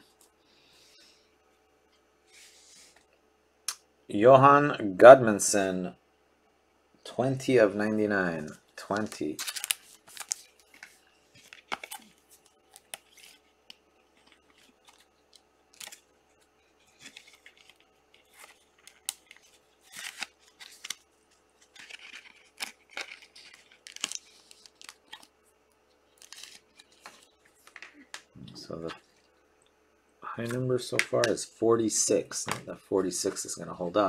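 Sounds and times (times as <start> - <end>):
cards rustling and sliding: 8.8 - 16.1, 16.7 - 25.3, 26.2 - 28.3.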